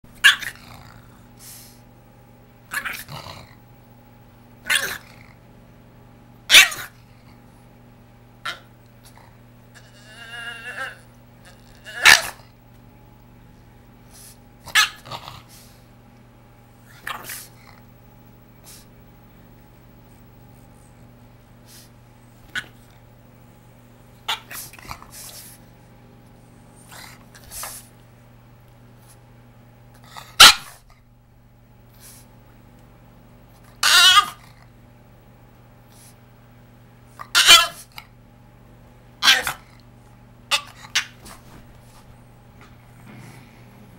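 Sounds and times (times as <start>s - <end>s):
dog screaming: 0.2s - 0.6s, 2.7s - 3.1s, 4.7s - 5.0s, 6.5s - 6.9s, 9.8s - 11.1s, 11.7s - 12.4s, 14.7s - 15.0s, 33.8s - 34.4s, 37.2s - 37.9s, 39.2s - 39.6s, 40.5s - 41.2s
dog snuffling breaths: 1.2s - 1.9s, 14.0s - 14.5s, 15.3s - 15.9s, 18.6s - 18.9s, 21.6s - 22.0s, 24.5s - 25.8s, 41.2s - 43.9s.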